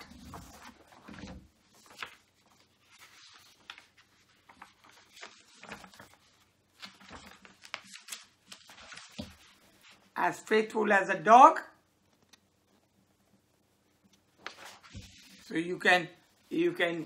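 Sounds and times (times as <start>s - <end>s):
paper rustling: 0.0s - 10.2s, 14.1s - 15.8s.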